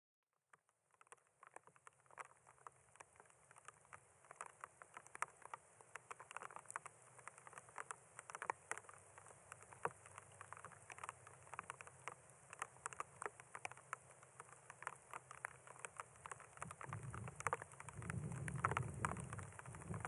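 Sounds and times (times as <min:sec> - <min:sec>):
raindrops pattering: 0:00.4 - 0:20.0
steady hiss of rain: 0:00.5 - 0:20.0.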